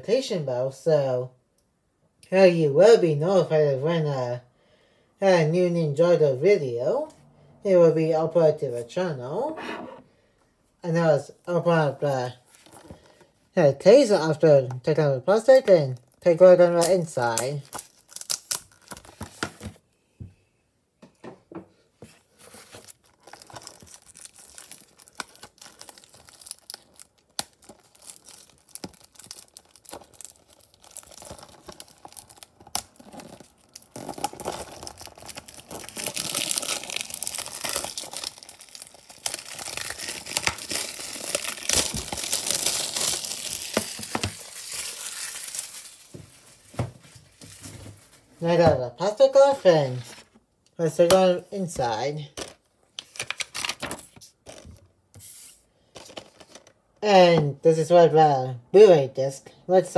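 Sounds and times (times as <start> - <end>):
shrink wrap crinkling and tearing: 15.5 - 19.7, 22.4 - 48.4, 52.4 - 54.8.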